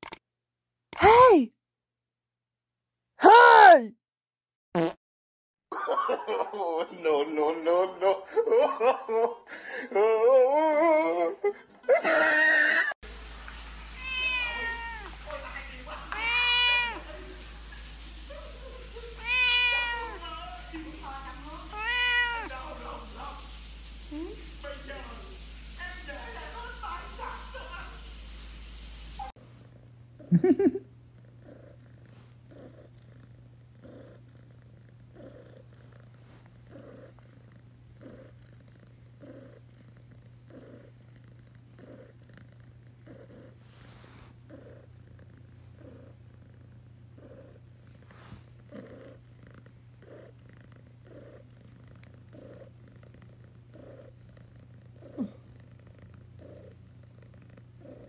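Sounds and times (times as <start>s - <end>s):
cat purring: 13.2s - 58.0s.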